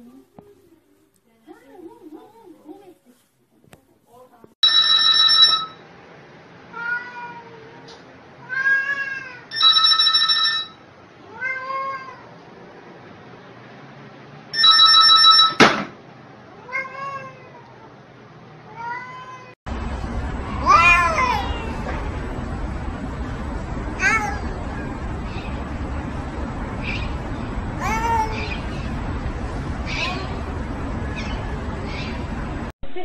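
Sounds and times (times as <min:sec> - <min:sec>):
outdoor background noise: 0:00.0 - 0:33.0
telephone ringing: 0:04.6 - 0:05.9, 0:09.5 - 0:10.9, 0:14.6 - 0:15.6
cat meowing: 0:06.8 - 0:07.8, 0:08.4 - 0:09.6, 0:11.3 - 0:12.3, 0:18.7 - 0:19.6, 0:20.6 - 0:21.8
cat yowling: 0:08.4 - 0:09.6, 0:11.3 - 0:12.3, 0:20.6 - 0:21.8, 0:24.0 - 0:24.5, 0:27.8 - 0:28.6.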